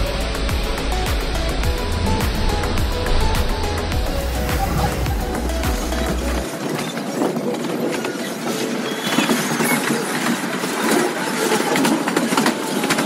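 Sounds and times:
train wheels rumbling on rails: 0:00.0 - 0:13.0
wheels clicking on track: 0:00.0 - 0:13.0
brief squeaks: 0:08.0 - 0:10.2.

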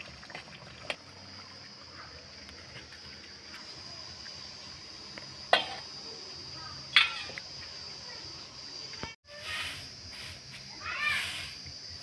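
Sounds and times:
high-pitched insect drone: 0:04.3 - 0:12.0.

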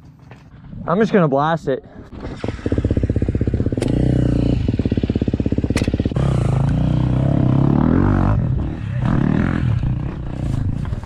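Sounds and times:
dirt bike engine revving: 0:02.1 - 0:10.8.

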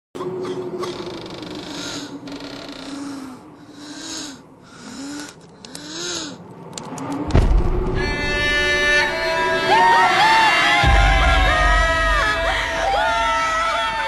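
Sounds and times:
low groans: 0:00.2 - 0:14.0
steady low drone: 0:00.2 - 0:14.0
wheezing breaths: 0:01.5 - 0:06.5
deep boom: 0:07.3 - 0:09.1, 0:10.8 - 0:13.7
music: 0:07.3 - 0:14.0.

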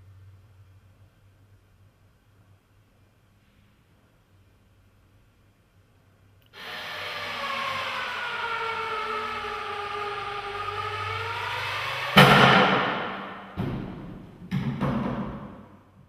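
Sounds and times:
sliding pitch whine: 0:06.6 - 0:14.0
loud bang: 0:06.6 - 0:15.6.

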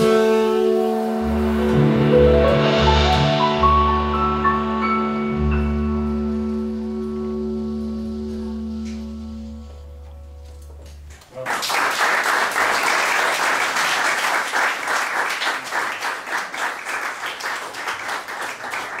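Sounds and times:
low double bass note: 0:00.2 - 0:11.1
audience applause: 0:11.1 - 0:19.0.

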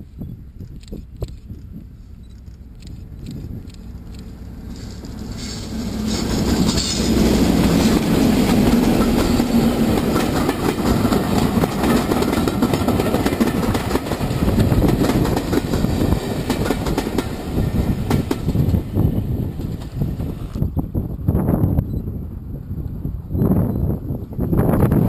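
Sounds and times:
diesel locomotive engine drone: 0:00.0 - 0:25.0
train wheels clicking over rail joints: 0:00.6 - 0:20.6.

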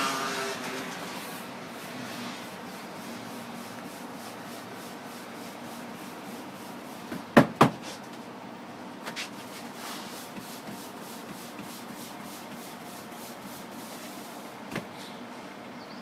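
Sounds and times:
hands rubbing dough on counter: 0:01.2 - 0:07.1, 0:09.1 - 0:14.5.

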